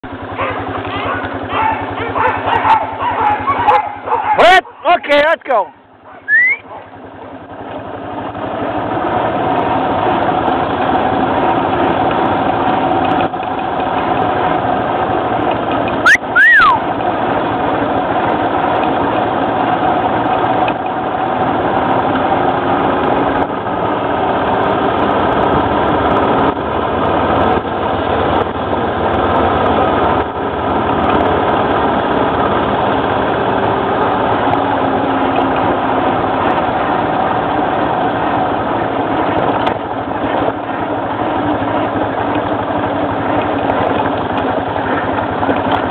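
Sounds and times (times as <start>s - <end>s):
atv engine running: 0.0s - 45.9s
wheels rolling on dirt trail: 0.0s - 45.9s
high squeal: 6.3s - 6.7s, 16.0s - 16.9s.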